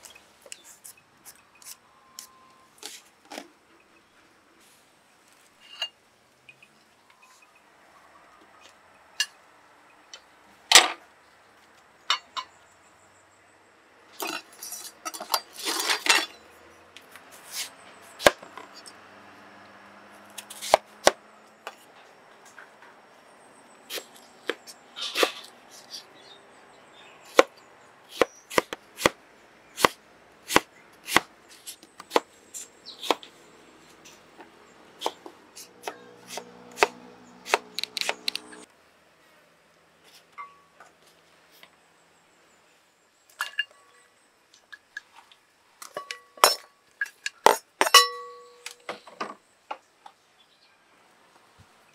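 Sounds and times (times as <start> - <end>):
knife chopping on wooden board: 28.1 - 29.2, 29.8 - 31.3, 35.8 - 38.3.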